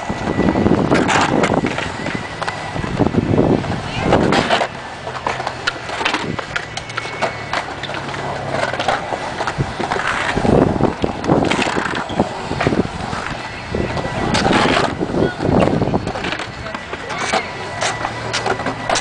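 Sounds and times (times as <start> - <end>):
skateboard wheels rolling on concrete: 0.0 - 19.0
skateboard knocks and scrapes: 4.2 - 10.5.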